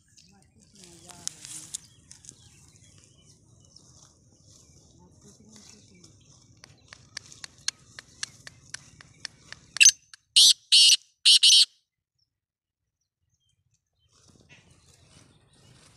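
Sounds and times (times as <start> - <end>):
sharp clicks: 6.6 - 11.6
francolin harsh calls: 9.8 - 11.7.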